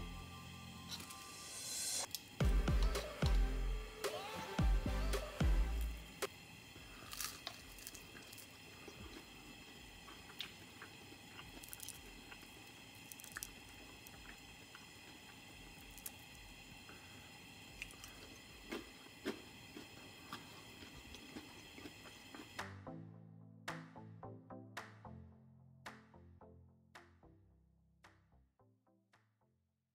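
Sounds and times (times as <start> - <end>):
faint steady hum: 0.0 - 22.7
squishy chewing sounds: 6.9 - 22.8
potatoes breaking with soft clicks: 10.0 - 12.5, 13.1 - 14.8.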